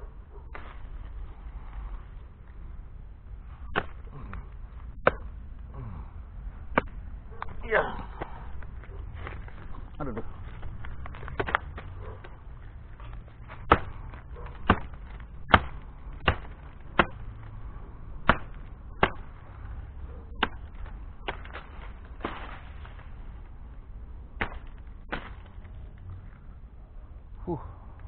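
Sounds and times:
machete chopping wood: 3.7 - 5.4, 6.7 - 7.6, 10.8 - 12.4, 13.5 - 17.6, 18.2 - 23.0, 24.4 - 25.7.

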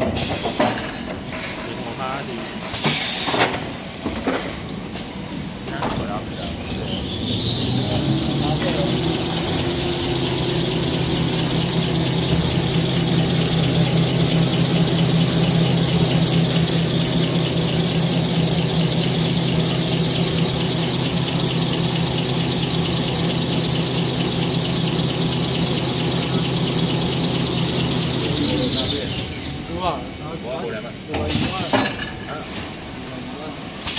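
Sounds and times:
machine whining: 5.6 - 31.7
fast mechanical beat: 7.4 - 28.7.

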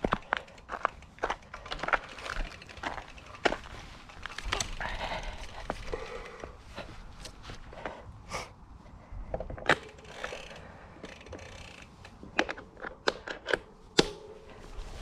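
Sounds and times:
bike derailleur clicks: 0.0 - 5.5, 9.6 - 14.1.

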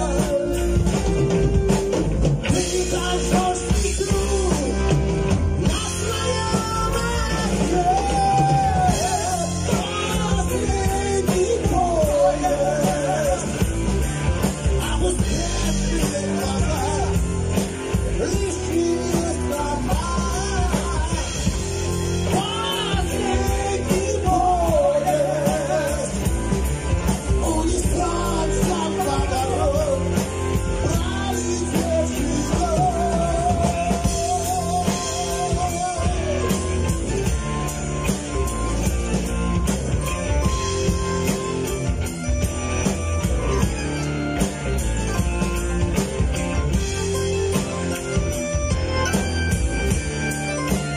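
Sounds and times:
rock band playing: 0.0 - 50.9
person singing with vibrato: 2.5 - 14.0, 14.7 - 37.4.

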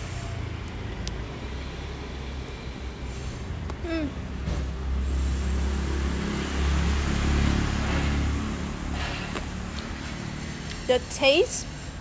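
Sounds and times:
vehicle engine rumble passing: 0.0 - 12.0.

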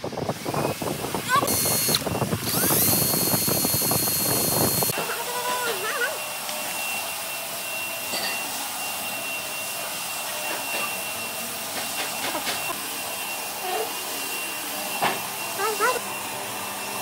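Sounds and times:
machine hissing: 0.8 - 5.0.

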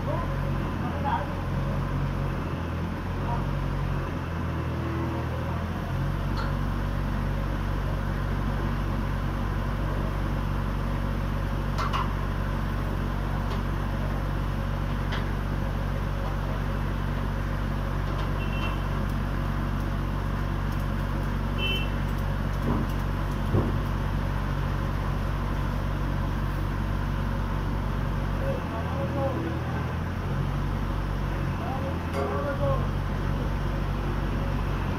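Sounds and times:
truck engine running: 0.0 - 34.9
light metal clanks: 32.1 - 32.5.

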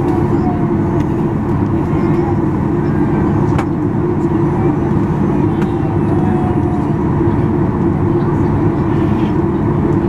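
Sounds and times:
jet engines droning: 0.0 - 10.0.

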